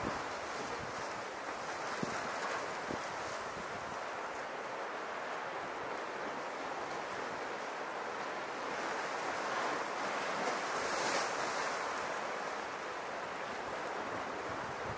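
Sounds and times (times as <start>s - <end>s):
sea waves washing against rocks: 0.0s - 14.9s.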